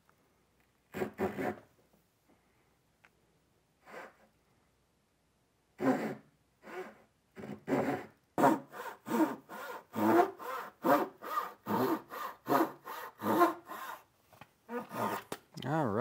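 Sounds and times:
hand saw cutting wood: 5.8s - 14.1s, 14.7s - 15.3s.

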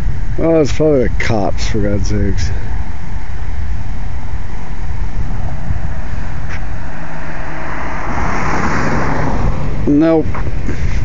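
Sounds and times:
steady low rumble: 0.0s - 11.0s
car passing: 4.1s - 11.0s.

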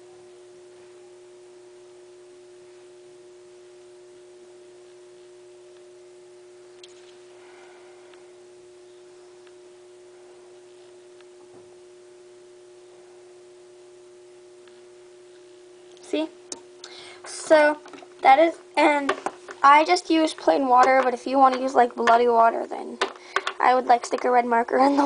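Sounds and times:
faint electrical hum: 0.0s - 25.0s
handling clicks and taps: 20.8s - 22.2s, 23.0s - 24.3s.

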